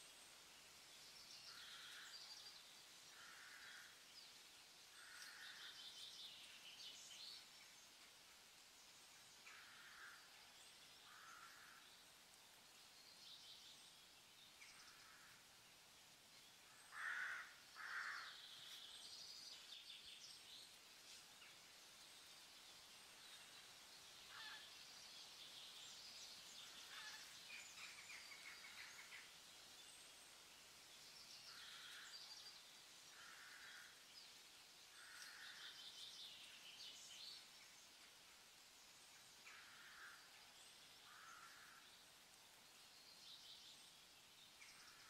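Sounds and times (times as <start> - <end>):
birds chirping and twittering: 0.0 - 45.0
faint bird calls: 11.0 - 11.9, 16.7 - 18.9, 24.3 - 24.8, 26.6 - 29.3, 34.9 - 36.2, 39.4 - 42.0.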